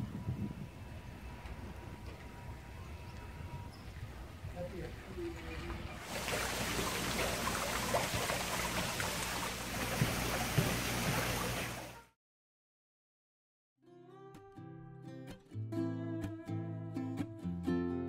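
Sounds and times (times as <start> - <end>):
water running and splashing: 4.7 - 12.1.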